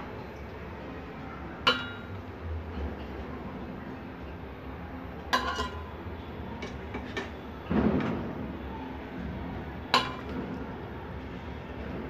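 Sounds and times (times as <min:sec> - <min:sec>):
spoon clinking against pot: 0:05.3 - 0:05.9.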